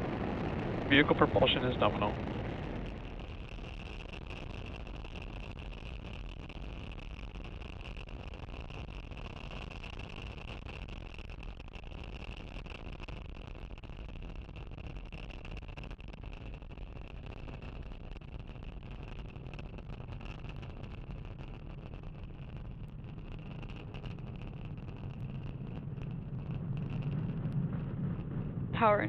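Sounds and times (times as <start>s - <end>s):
rocket engine roar: 0.0s - 29.0s
steady high whine: 0.0s - 29.0s.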